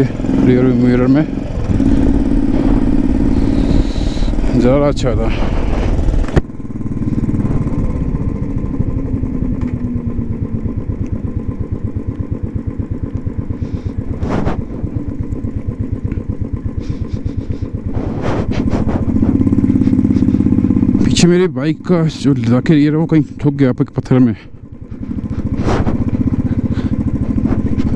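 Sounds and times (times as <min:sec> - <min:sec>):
motorcycle engine pulsing: 0:00.0 - 0:27.9
rush of noise: 0:01.6 - 0:09.0.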